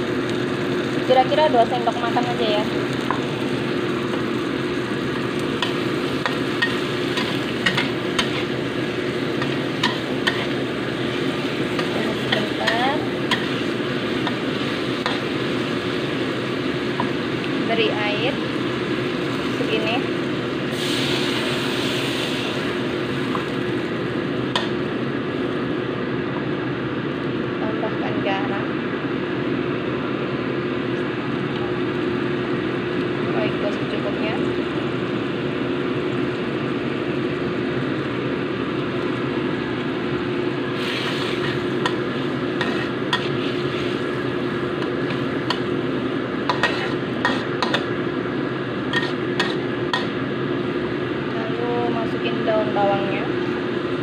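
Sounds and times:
sauce simmering: 0:00.0 - 0:17.6, 0:34.5 - 0:51.3
water hissing in hot wok: 0:00.0 - 0:19.9, 0:20.5 - 0:24.0, 0:38.4 - 0:48.0
steady low hum: 0:00.0 - 0:54.0
metal spatula stirring: 0:41.0 - 0:44.0, 0:46.5 - 0:47.8, 0:48.9 - 0:50.1.

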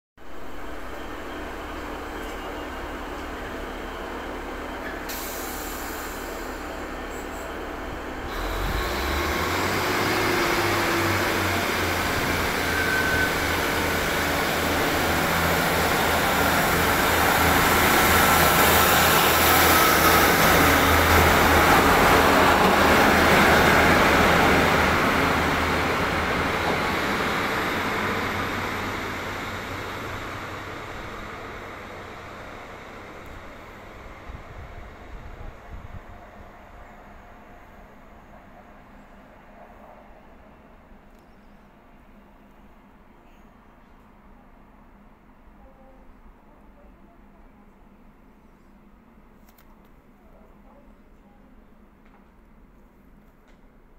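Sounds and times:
diesel train engines: 0:00.2 - 0:53.9
train running noise: 0:00.3 - 0:41.0.

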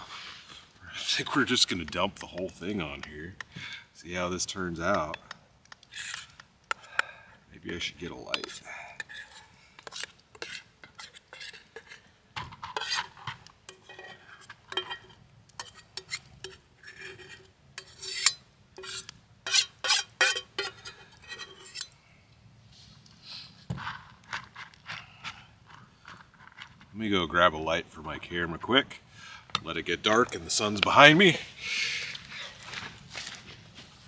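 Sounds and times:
utensil scraping a cooking pan: 0:05.8 - 0:06.4, 0:08.2 - 0:22.0.

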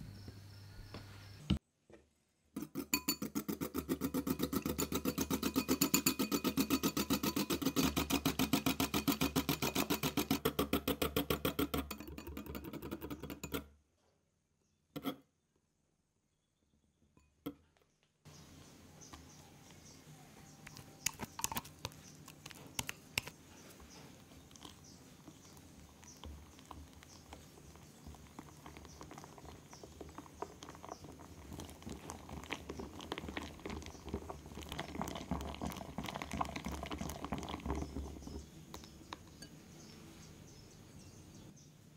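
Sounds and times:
whisk beating in glass bowl: 0:02.6 - 0:13.6
whisk clicking against bowl: 0:02.6 - 0:13.6.

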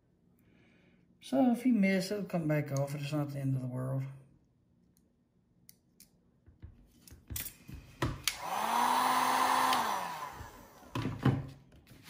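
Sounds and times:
heat gun blowing: 0:08.2 - 0:11.0.

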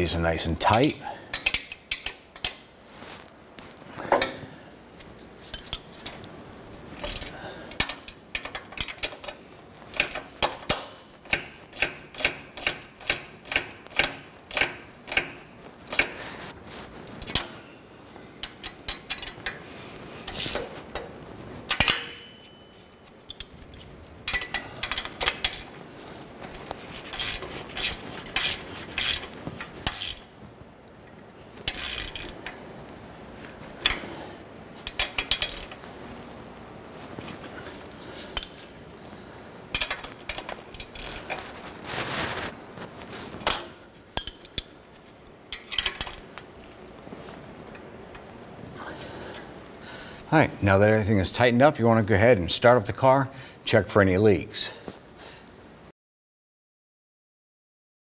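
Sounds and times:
wrench clinking on metal: 0:01.3 - 0:02.6, 0:05.4 - 0:06.1, 0:18.4 - 0:19.6, 0:21.7 - 0:25.7, 0:33.8 - 0:34.2, 0:34.8 - 0:35.8, 0:38.3 - 0:38.8, 0:39.7 - 0:41.4, 0:43.4 - 0:44.8, 0:45.5 - 0:46.3
socket ratchet clicking: 0:07.0 - 0:16.2, 0:27.1 - 0:30.3, 0:31.7 - 0:32.4, 0:34.9 - 0:35.8.

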